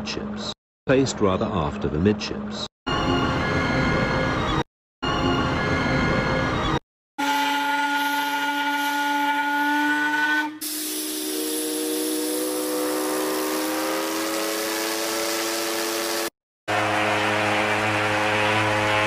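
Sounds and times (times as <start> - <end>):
rising steam whistle with hiss: 7.2 - 19.0
ship steam whistle blast: 7.2 - 19.0.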